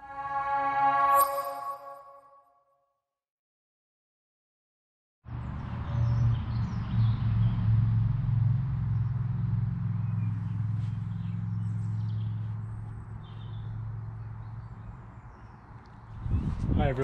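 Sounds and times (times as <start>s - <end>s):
low engine-like rumble: 5.3s - 17.0s.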